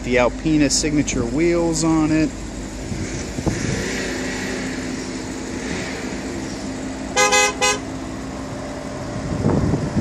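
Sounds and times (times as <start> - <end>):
car horn beeps: 7.1 - 7.9.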